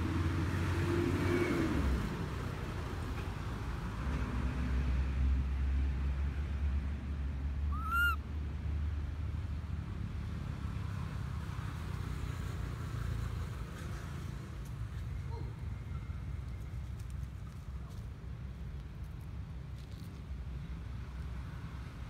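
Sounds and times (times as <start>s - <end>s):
baby monkey cooing: 7.7s - 8.2s.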